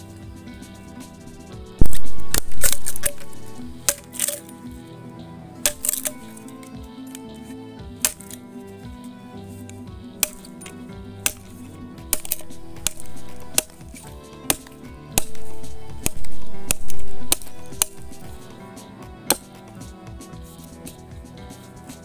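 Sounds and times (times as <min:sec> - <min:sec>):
background music: 0:00.0 - 0:22.0
knife chopping bamboo: 0:05.7 - 0:06.4, 0:08.0 - 0:08.4, 0:10.2 - 0:18.6.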